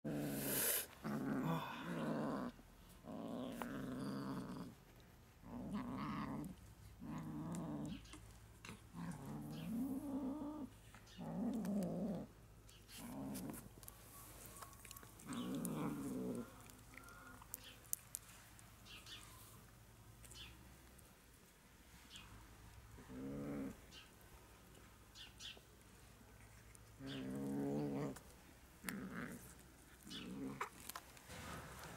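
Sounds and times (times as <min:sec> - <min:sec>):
kitten growling: 0:00.0 - 0:04.8, 0:05.4 - 0:13.8, 0:14.8 - 0:17.7, 0:23.0 - 0:23.8, 0:27.0 - 0:31.0.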